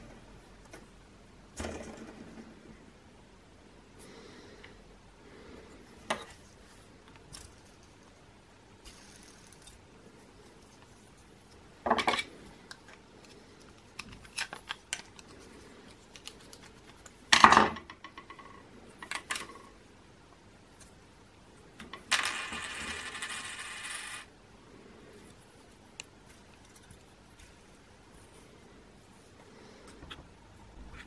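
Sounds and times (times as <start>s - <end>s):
fidget spinner whirring: 8.8s - 9.8s.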